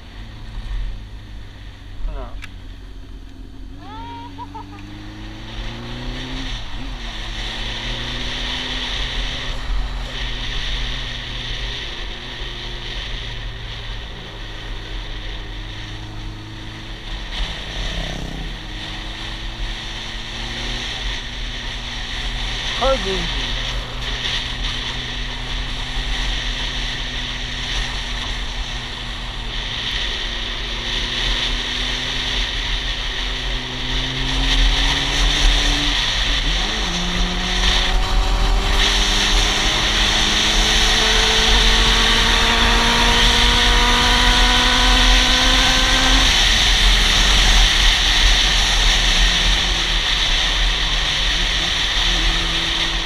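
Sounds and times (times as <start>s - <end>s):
motorcycle engine accelerating: 0.0s - 53.0s.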